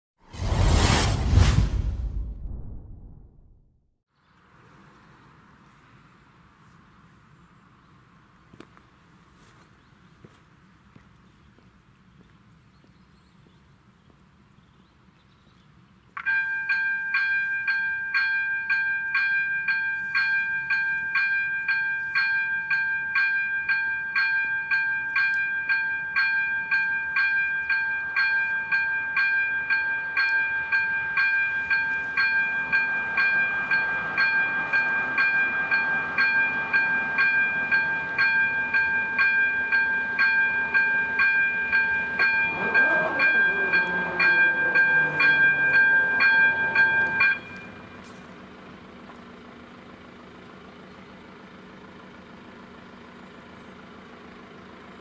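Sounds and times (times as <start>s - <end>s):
low rumble: 0.2s - 3.9s
level crossing warning bell: 16.2s - 48.0s.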